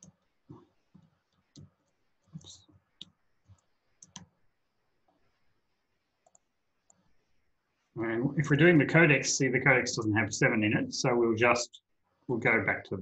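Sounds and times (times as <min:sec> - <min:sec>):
keyboard typing: 0:00.9 - 0:04.4, 0:06.2 - 0:07.1.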